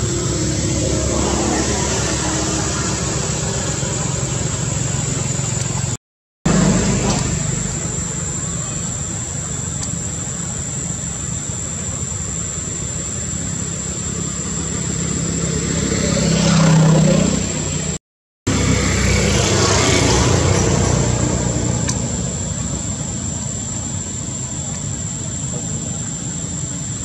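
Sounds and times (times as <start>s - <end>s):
vehicle engine passing: 0.0s - 9.4s, 13.6s - 23.9s
outdoor background noise: 0.0s - 27.0s.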